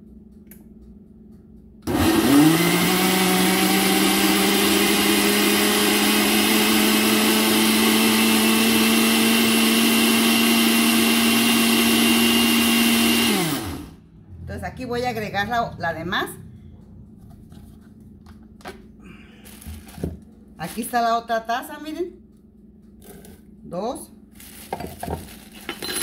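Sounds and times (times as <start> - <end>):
blender motor grinding: 1.9 - 14.0.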